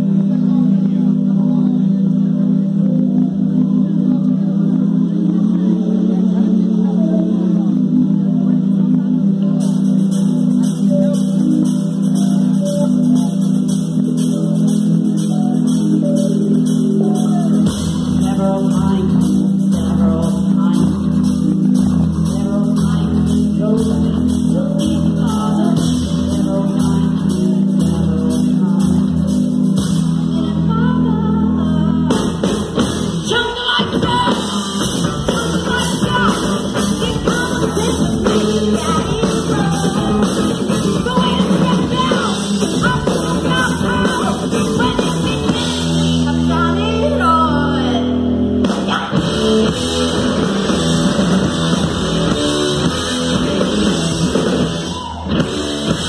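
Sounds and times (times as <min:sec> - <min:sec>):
electric guitars: 0:00.0 - 0:56.0
keyboards: 0:00.0 - 0:56.0
drum kit: 0:07.5 - 0:30.8, 0:32.0 - 0:47.2, 0:48.0 - 0:56.0
woman singing: 0:15.2 - 0:49.8.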